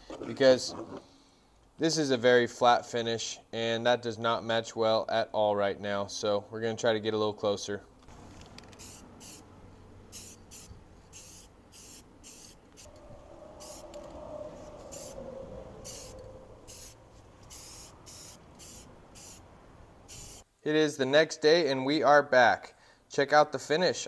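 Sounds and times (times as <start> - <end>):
spray paint can hissing: 8.6 - 9.5, 10.1 - 12.9, 13.6 - 13.9, 14.9 - 15.2, 15.8 - 20.4.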